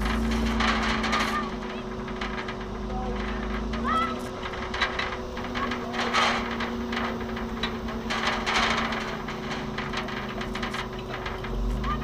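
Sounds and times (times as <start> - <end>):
sharp clicks and knocks: 0.0 - 12.0
vehicle engine hum: 0.0 - 12.0.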